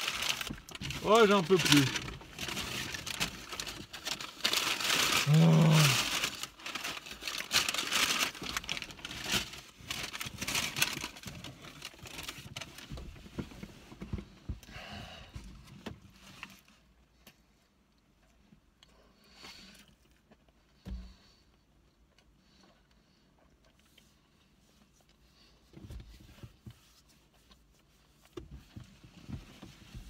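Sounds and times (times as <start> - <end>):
paper wrapper crinkling: 0.0 - 12.8
man's short wordless sound: 5.2 - 6.0.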